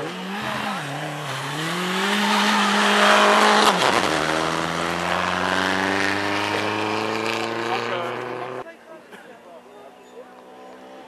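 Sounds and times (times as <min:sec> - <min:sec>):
rally car engine at high revs: 0:00.0 - 0:08.6.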